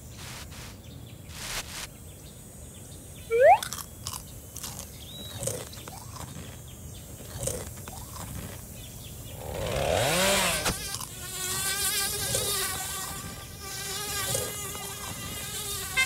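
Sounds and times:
fly buzzing: 3.3s - 16.0s.

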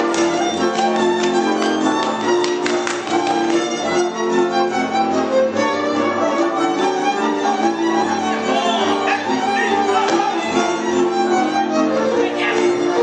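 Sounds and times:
dancers slapping: 0.0s - 4.0s
fiddle melody: 0.0s - 13.0s
folk band playing dance music: 0.0s - 13.0s.

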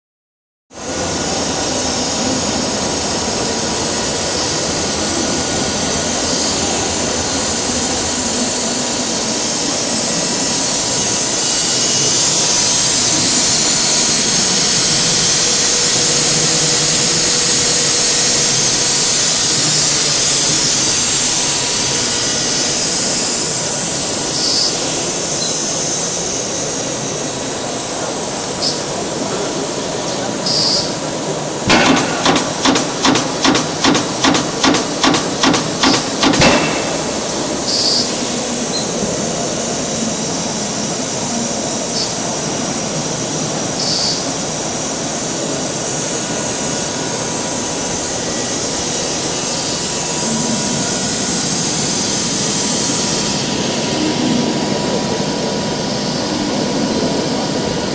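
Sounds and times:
stamping press mechanical din: 31.7s - 38.0s.

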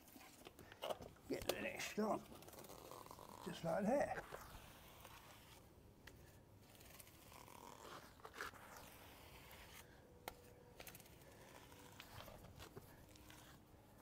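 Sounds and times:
grout float scraping tiles: 2.3s - 10.0s, 10.8s - 13.6s.

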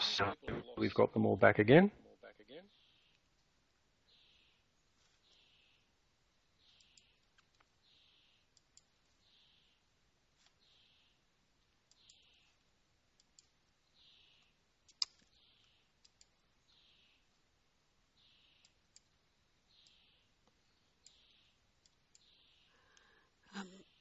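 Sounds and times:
faint clicks: 6.7s - 7.8s, 8.5s - 9.1s, 11.6s - 13.6s, 14.3s - 16.4s, 18.6s - 19.2s, 19.8s - 23.1s.

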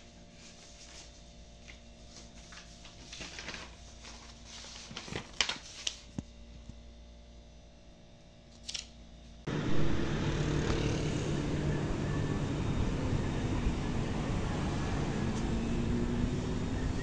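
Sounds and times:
low room hum: 0.0s - 17.0s
paper rustling: 0.3s - 6.2s.

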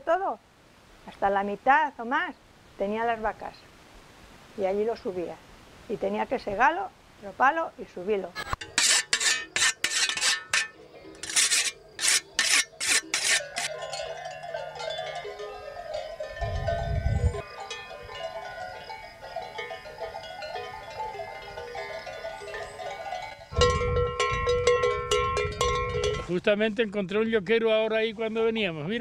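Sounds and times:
whetstone rasping on scythe blade: 8.4s - 13.7s
cowbells ringing: 13.2s - 26.3s.

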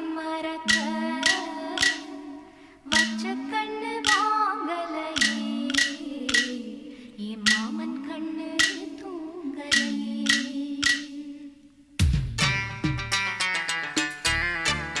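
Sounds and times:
person singing: 0.0s - 11.6s
sharp percussive taps: 0.6s - 2.2s, 2.9s - 3.3s, 4.0s - 4.3s, 5.2s - 6.7s, 7.4s - 7.8s, 8.6s - 9.0s, 9.7s - 11.2s.

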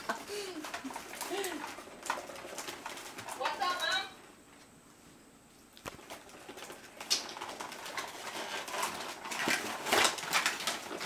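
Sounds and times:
plastic packaging rustling: 5.8s - 11.0s.

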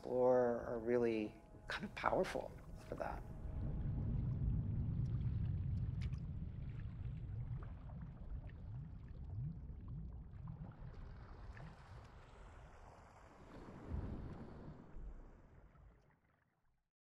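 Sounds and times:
deep water-like rumble: 0.0s - 16.5s.

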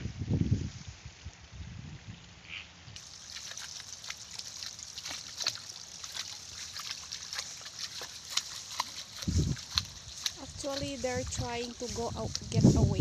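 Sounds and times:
feet splashing in shallow water: 3.0s - 13.0s.

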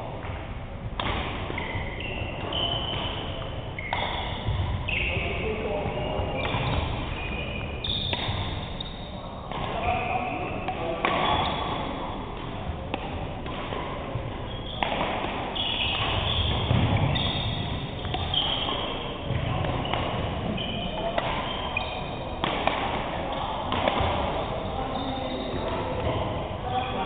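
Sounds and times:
racket striking shuttlecock: 1.0s - 4.8s, 8.1s - 8.7s, 10.6s - 11.4s, 12.0s - 20.5s, 21.1s - 24.6s
sneakers squeaking on wooden court: 1.6s - 11.9s, 14.3s - 26.8s.

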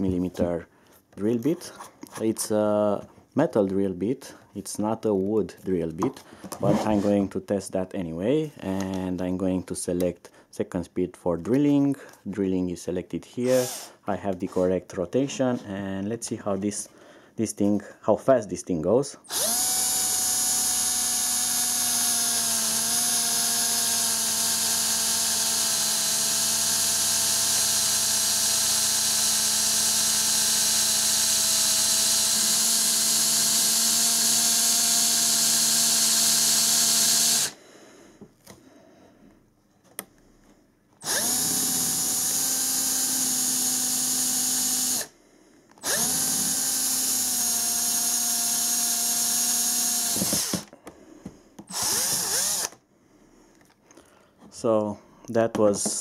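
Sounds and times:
cordless drill motor whine: 13.5s - 13.9s, 19.3s - 37.6s, 41.0s - 45.1s, 45.8s - 50.7s, 51.7s - 52.8s.

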